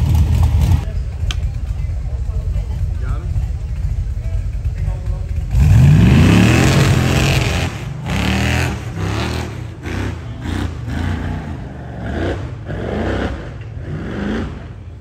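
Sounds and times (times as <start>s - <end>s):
buggy engine revving hard: 5.4s - 15.0s.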